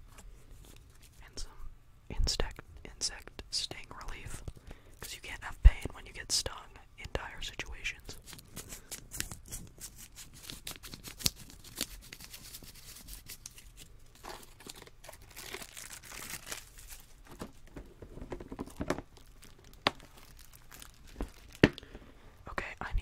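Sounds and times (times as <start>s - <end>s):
plastic packets crinkling: 8.2s - 21.9s.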